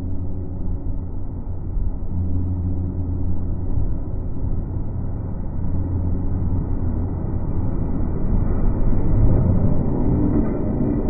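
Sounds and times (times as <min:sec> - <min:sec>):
electric train rumbling past: 0:03.6 - 0:11.0.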